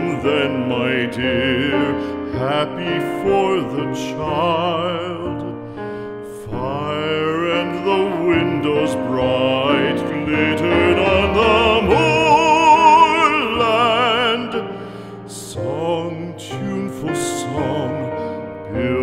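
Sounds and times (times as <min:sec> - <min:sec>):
instrumental accompaniment: 0:05.2 - 0:19.0
operatic solo singing: 0:06.5 - 0:19.0.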